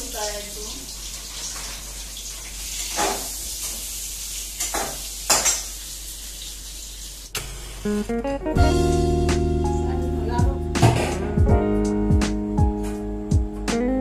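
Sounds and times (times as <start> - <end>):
food sizzling: 0.0 - 11.4.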